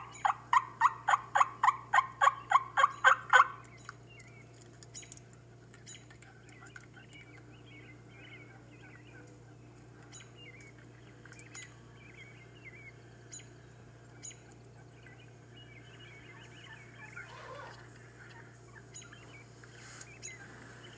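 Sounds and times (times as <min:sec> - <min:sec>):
steady low hum: 0:00.0 - 0:20.9
bird chirps and calls: 0:05.8 - 0:20.9.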